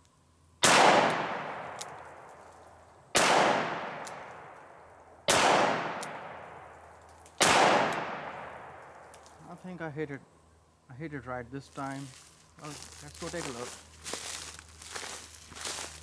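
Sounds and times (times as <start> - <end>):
revolver gunshots with echo: 0.6 - 2.2, 3.1 - 6.8, 7.4 - 9.0.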